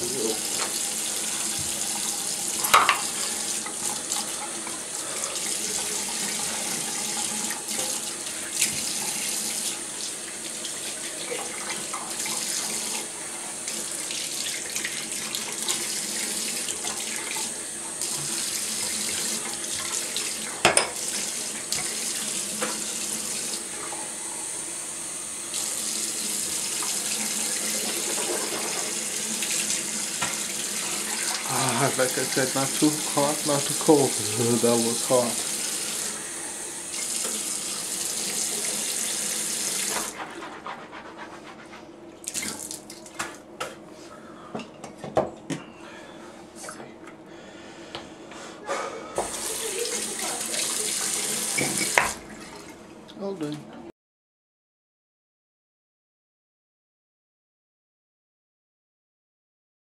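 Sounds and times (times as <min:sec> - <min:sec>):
faucet running into sink: 0:00.0 - 0:24.1, 0:25.5 - 0:40.2, 0:42.2 - 0:43.1, 0:49.2 - 0:52.8.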